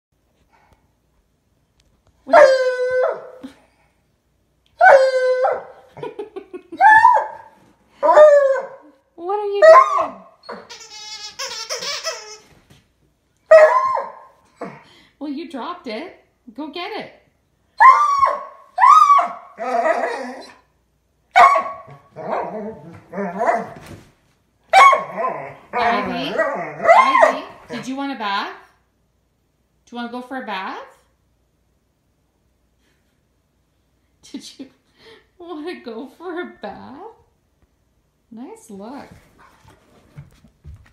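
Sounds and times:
dog yipping: 0:02.3 - 0:03.4, 0:04.8 - 0:05.8, 0:09.6 - 0:12.6, 0:13.5 - 0:14.3, 0:17.8 - 0:20.6, 0:21.3 - 0:23.8, 0:24.7 - 0:27.6
dog howling: 0:17.8 - 0:20.6, 0:24.8 - 0:27.5.

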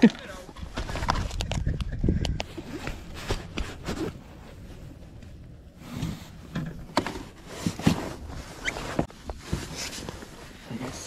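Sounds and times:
wind rumble on microphone: 0:00.5 - 0:07.0.

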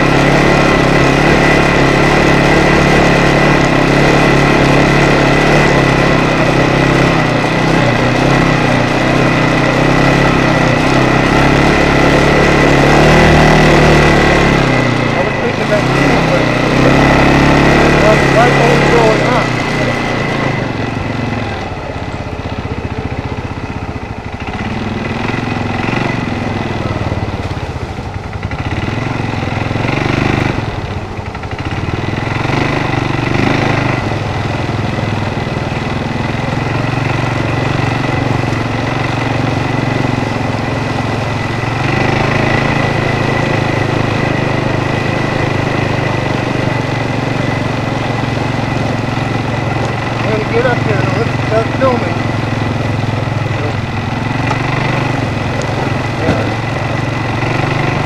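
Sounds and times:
atv engine running: 0:00.0 - 0:58.0.

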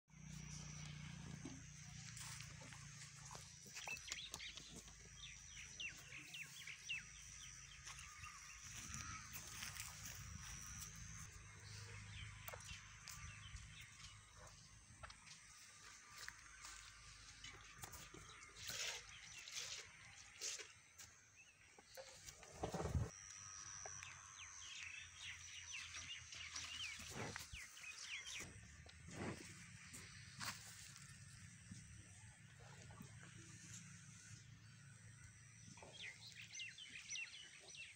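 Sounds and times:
thin steady high tone: 0:05.6 - 0:12.9.

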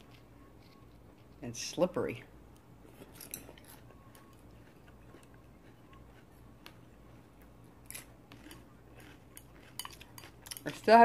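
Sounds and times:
faint chewing: 0:02.5 - 0:11.0.

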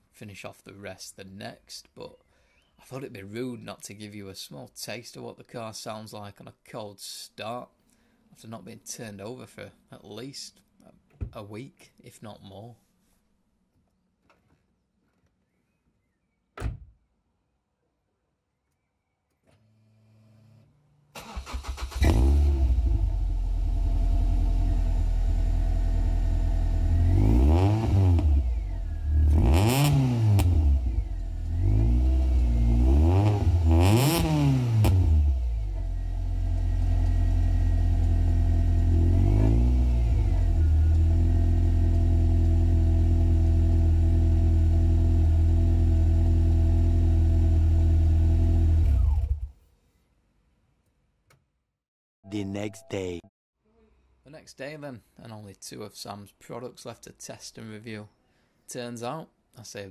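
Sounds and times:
car engine starting and revving: 0:21.2 - 0:49.5.

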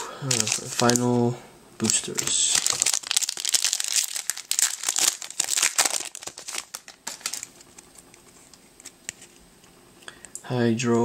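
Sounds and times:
foil wrapper crinkling and tearing: 0:00.2 - 0:01.2, 0:01.8 - 0:09.3
faint rustles and clicks: 0:06.2 - 0:10.1.

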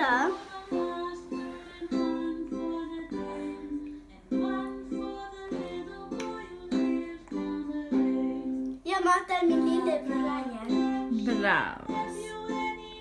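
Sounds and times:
plucked string melody: 0:04.3 - 0:13.0.

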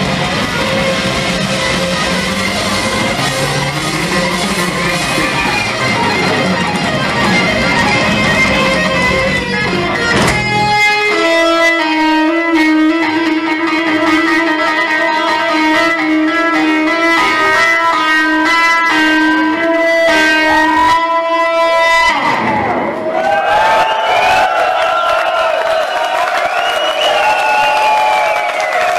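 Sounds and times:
electric guitar sustained note: 0:00.0 - 0:23.1.

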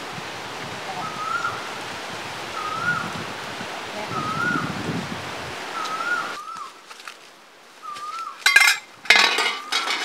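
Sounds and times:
bird whistled call: 0:01.0 - 0:01.6, 0:02.6 - 0:03.1, 0:04.1 - 0:04.7, 0:05.8 - 0:06.7, 0:07.8 - 0:08.4
wok and ladle clanking: 0:08.4 - 0:10.0
loud metallic clashes: 0:08.5 - 0:10.0.

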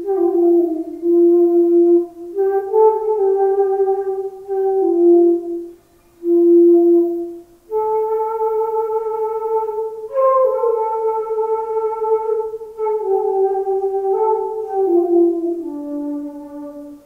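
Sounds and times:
solo flute melody: 0:00.0 - 0:17.0.

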